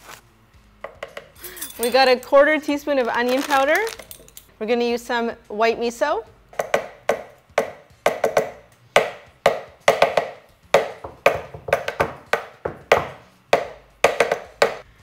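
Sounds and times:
sharp knocks on hard surfaces: 0:06.6 - 0:14.8.

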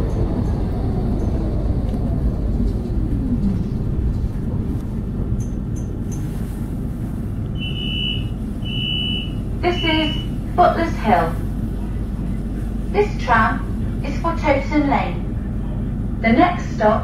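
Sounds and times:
tram interior rumble: 0:00.0 - 0:17.0
tram motor whine: 0:00.0 - 0:17.0
short high electronic beeps: 0:07.6 - 0:09.4.

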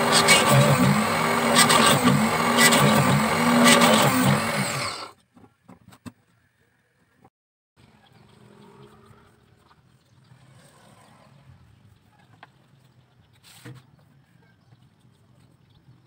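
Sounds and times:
drill bit cutting bamboo: 0:00.0 - 0:05.2
drill press motor running: 0:00.0 - 0:05.2.

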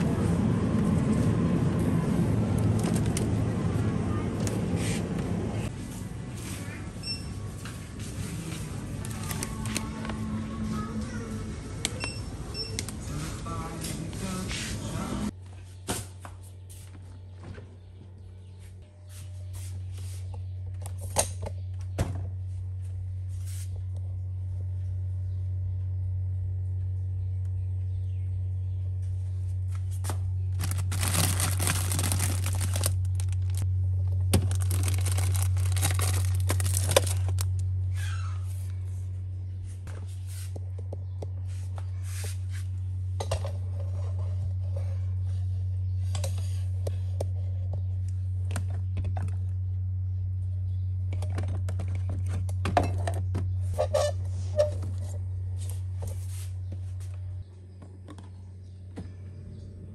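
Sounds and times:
refrigerator low hum: 0:00.0 - 0:59.9
plastic rustling and crinkling: 0:08.2 - 0:10.1, 0:29.9 - 0:37.6.

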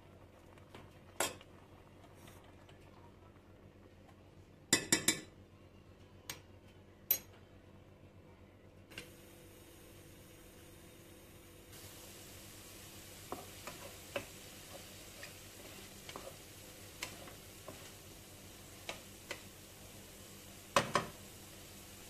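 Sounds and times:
meat sizzling in a pan: 0:10.3 - 0:22.0
wooden spatula knocking pan: 0:20.8 - 0:21.2.

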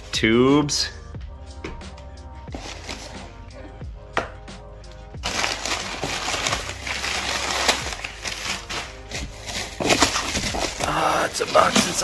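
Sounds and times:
background music: 0:00.0 - 0:12.0
cardboard and plastic wrap rustling: 0:02.5 - 0:03.2, 0:05.2 - 0:12.0.

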